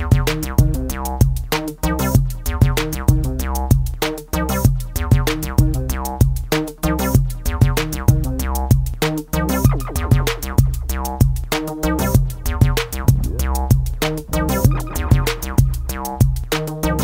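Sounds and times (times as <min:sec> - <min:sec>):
electronic music: 0:09.6 - 0:10.8, 0:11.6 - 0:17.0.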